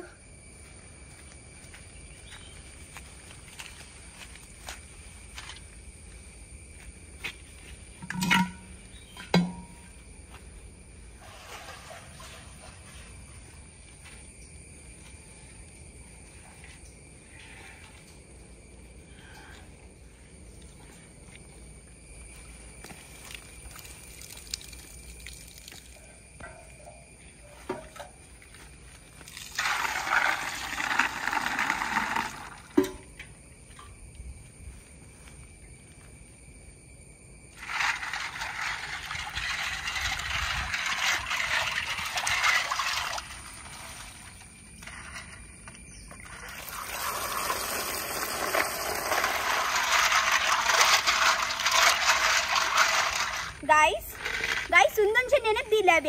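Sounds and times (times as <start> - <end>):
water pouring into steel bowl: 29.3 - 32.9, 46.2 - 53.6.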